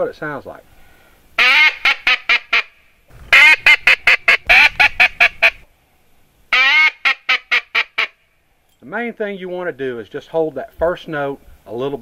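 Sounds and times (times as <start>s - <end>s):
duck call quick short notes: 3.3s - 5.6s.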